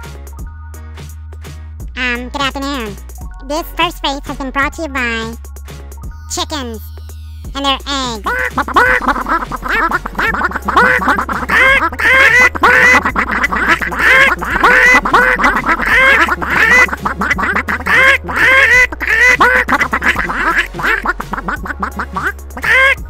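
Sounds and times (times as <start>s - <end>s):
steady bass line: 0.0s - 23.0s
cartoon bird calls squawking: 7.6s - 23.0s.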